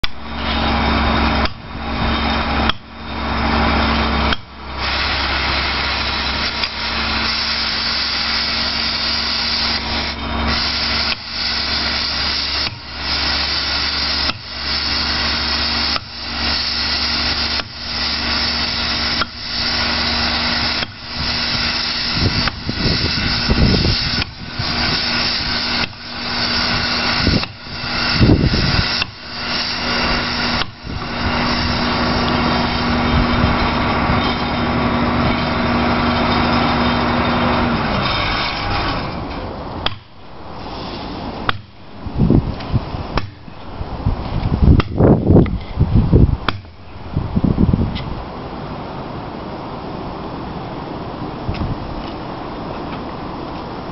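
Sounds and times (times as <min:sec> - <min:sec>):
sledgehammer striking steel wedges: 0:00.0 - 0:41.9, 0:43.1 - 0:43.7, 0:46.4 - 0:46.9
heavy machine engine running: 0:00.0 - 0:53.9.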